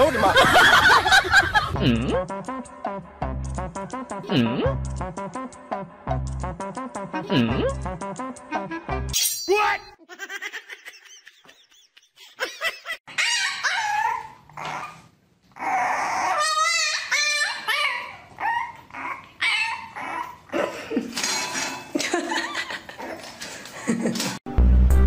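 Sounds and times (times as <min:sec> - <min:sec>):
puppy whining and yipping: 0:13.1 - 0:20.5.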